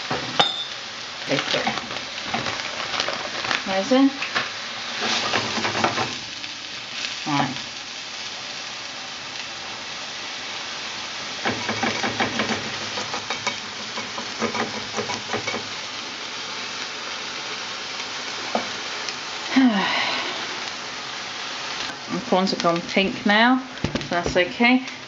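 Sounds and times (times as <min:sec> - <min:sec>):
food sizzling in a pan: 0:00.0 - 0:25.0
spatula scraping a pan: 0:04.9 - 0:06.2.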